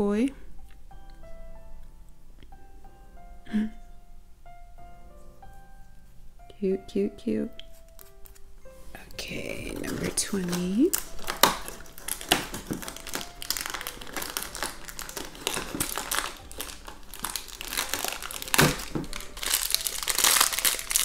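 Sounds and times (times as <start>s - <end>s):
plastic bag crinkling: 8.9s - 21.0s.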